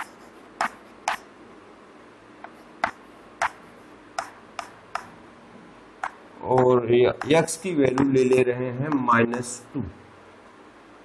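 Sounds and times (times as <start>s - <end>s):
chalk tapping on chalkboard: 0.0s - 1.2s, 2.4s - 5.1s, 6.0s - 9.5s.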